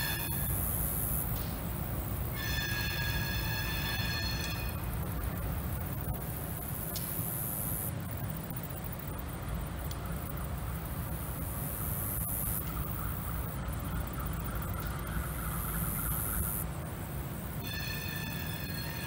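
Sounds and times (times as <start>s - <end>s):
wheels squealing on rails: 0.0s - 7.8s, 10.2s - 16.8s, 17.4s - 19.0s
locomotive engine rumble: 0.0s - 19.0s.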